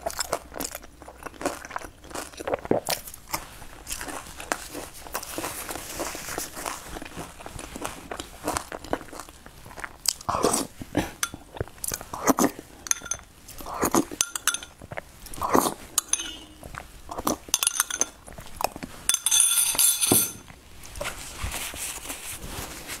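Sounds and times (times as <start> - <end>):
crunchy chewing: 0.0 - 12.9, 13.5 - 17.5
spoon scraping glass bowl: 12.2 - 14.8, 15.4 - 18.2, 19.1 - 20.5
glassy clatter: 12.8 - 13.3, 14.2 - 14.8, 16.0 - 16.7, 17.5 - 18.2, 19.1 - 20.6.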